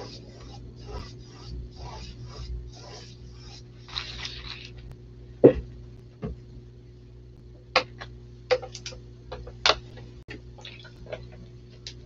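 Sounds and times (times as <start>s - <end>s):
paintbrush scrubbing on canvas: 0.0s - 4.8s
low electrical hum: 0.0s - 12.0s.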